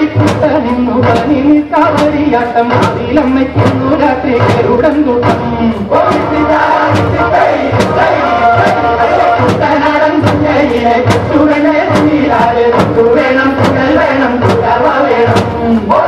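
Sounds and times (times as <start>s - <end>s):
steady drum beat: 0.0s - 16.0s
group chanting in unison: 5.9s - 16.0s.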